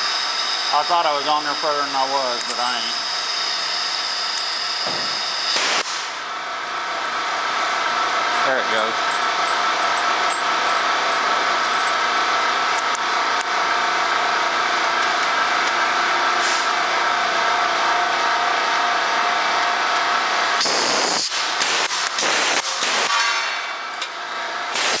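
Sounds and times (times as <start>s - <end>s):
pneumatic rivet gun hissing: 4.8s - 6.2s, 20.6s - 23.1s, 24.7s - 25.0s.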